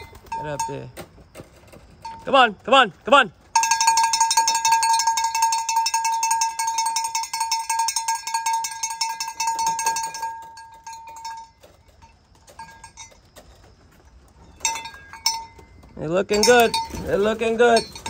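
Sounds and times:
bell rung rapidly: 3.6s - 11.6s, 16.3s - 18.0s.

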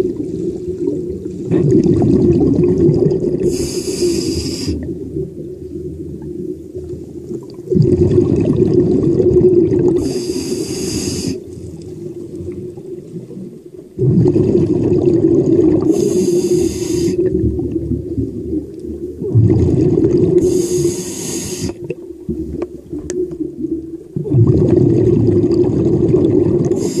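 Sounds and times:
exhaled bubbles rumbling underwater: 0.0s - 27.0s
breath hiss: 3.4s - 4.8s, 10.0s - 11.5s, 15.9s - 17.3s, 20.4s - 21.8s, 26.7s - 27.0s.

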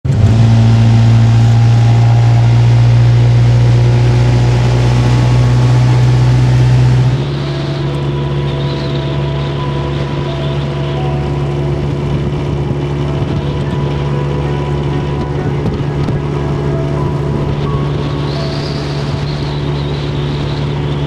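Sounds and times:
motorboat engine humming: 0.0s - 21.0s
wind: 0.0s - 21.0s
rushing water: 0.1s - 21.0s.

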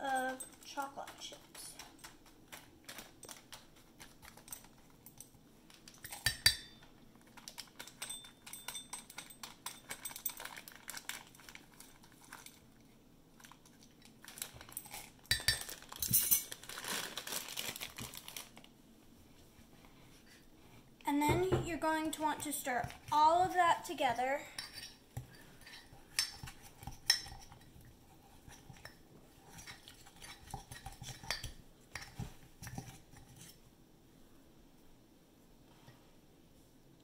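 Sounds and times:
metal spoon clinking on ceramic: 6.0s - 6.8s, 7.8s - 10.4s, 29.5s - 32.8s
bag rustling: 15.6s - 18.7s.

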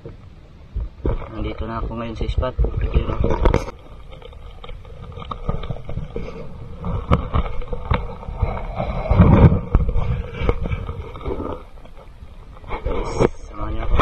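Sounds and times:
low uneven rumble: 0.0s - 14.0s
sea water sloshing and splashing: 0.0s - 14.0s.

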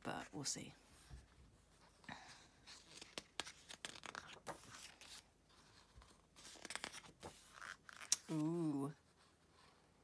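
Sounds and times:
paper pages rustling and turning: 0.9s - 10.0s.

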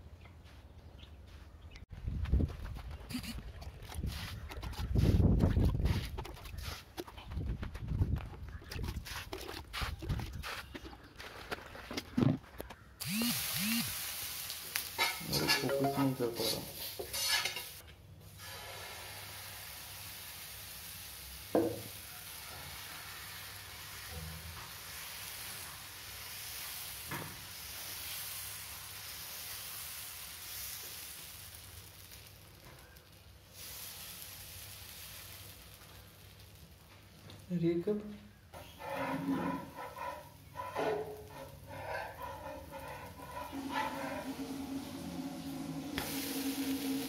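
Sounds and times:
batter sizzling on hot pan: 13.0s - 37.5s, 39.6s - 47.0s
utensils clattering: 15.0s - 17.8s.

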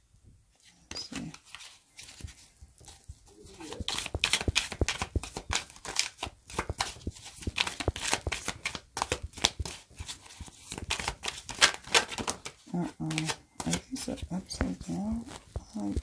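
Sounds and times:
cards being shuffled: 0.8s - 16.0s.

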